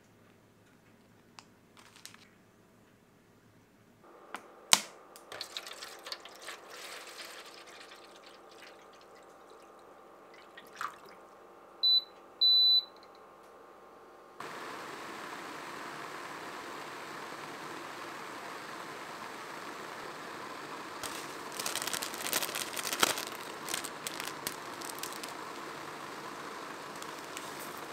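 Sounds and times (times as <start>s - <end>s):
sharp click: 4.3s - 5.3s
water pouring into a foil tray: 5.3s - 11.1s, 21.0s - 25.4s
cooker control panel beeps: 11.8s - 13.1s.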